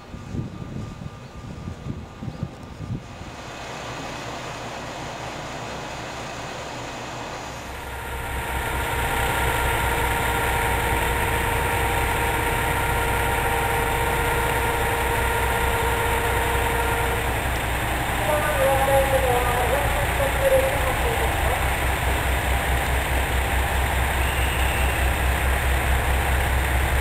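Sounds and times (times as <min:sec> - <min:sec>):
diesel railcar engines idling: 0:00.0 - 0:27.0.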